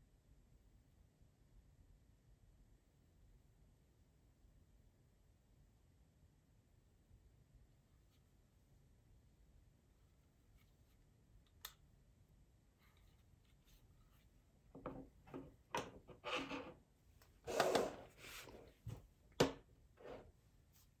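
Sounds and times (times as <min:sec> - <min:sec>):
click: 0:11.4 - 0:11.8
rubs and scrapes on wooden table: 0:14.9 - 0:16.8, 0:17.4 - 0:19.0, 0:20.0 - 0:21.0.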